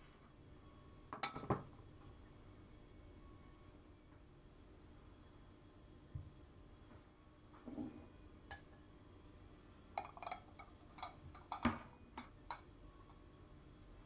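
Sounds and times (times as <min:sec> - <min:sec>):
ceramic bowls clinking: 0:01.2 - 0:01.7, 0:09.9 - 0:12.8.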